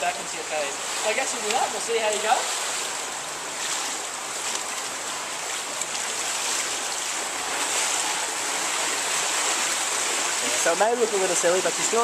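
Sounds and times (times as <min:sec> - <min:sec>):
water splashing in swimming pool: 0:00.0 - 0:12.0.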